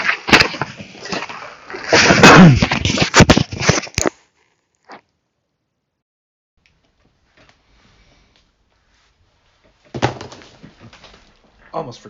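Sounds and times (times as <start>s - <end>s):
microphone handling rustling: 0.0s - 4.2s.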